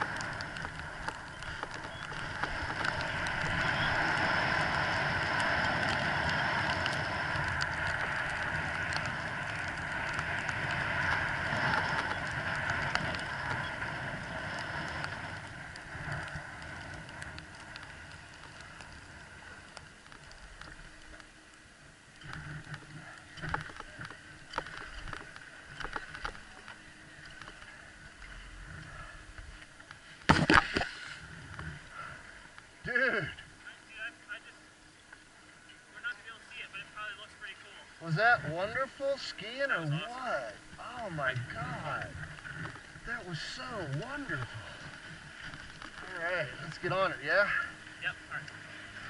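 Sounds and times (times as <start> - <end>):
scrapes and clicks: 0.0 - 4.3, 22.2 - 27.8
skis sliding over snow: 0.0 - 19.7, 35.9 - 49.0.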